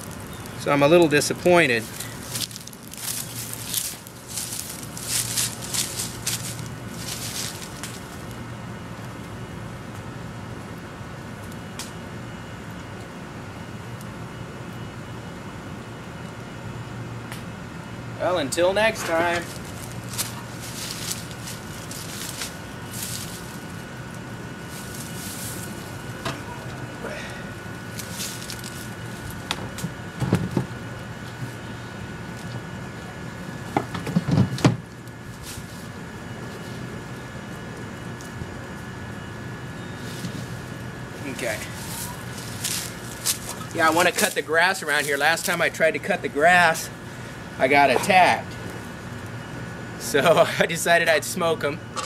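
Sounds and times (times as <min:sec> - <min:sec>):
footsteps rustling through leaves: 0:00.0 - 0:08.4, 0:19.2 - 0:26.2, 0:27.8 - 0:29.5, 0:35.2 - 0:36.9, 0:40.0 - 0:45.7
steady low hum: 0:00.0 - 0:52.0.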